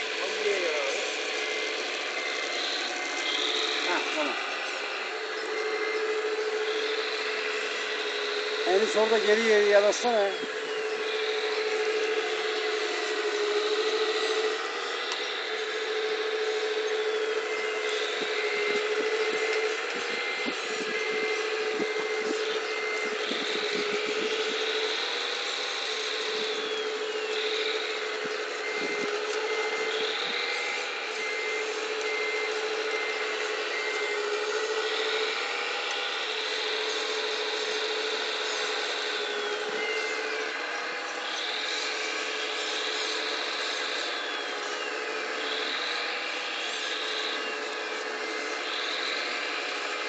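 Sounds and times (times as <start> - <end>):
hydraulic pump whining: 0.0 - 50.0.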